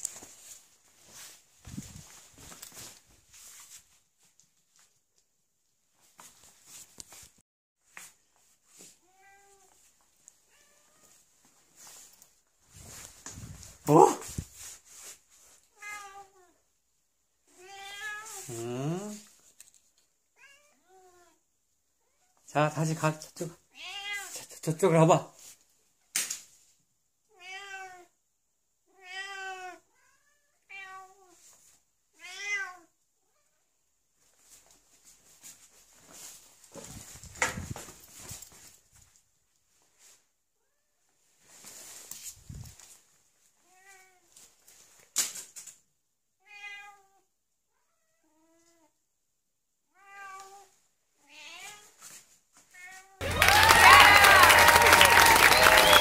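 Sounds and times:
faint rustling and movement: 0.0s - 21.4s, 23.2s - 27.0s, 30.0s - 32.5s, 33.3s - 46.0s, 50.3s - 53.2s
cat meowing: 9.0s - 9.8s, 15.7s - 16.6s, 17.5s - 18.5s, 23.7s - 24.4s, 27.3s - 28.1s, 28.9s - 31.4s, 32.2s - 32.9s, 46.4s - 47.2s, 49.9s - 51.9s.

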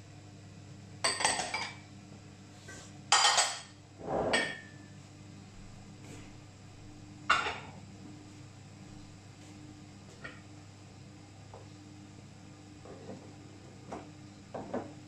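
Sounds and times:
low steady hum: 0.0s - 15.0s
pots and pans clinking: 1.0s - 1.8s, 2.7s - 4.8s, 7.3s - 7.8s.

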